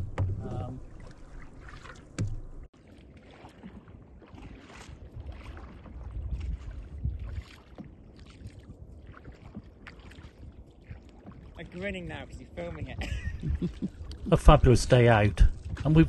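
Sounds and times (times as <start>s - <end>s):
water splashing around canoe: 0.0s - 16.0s
wind rumble on microphone: 3.8s - 16.0s.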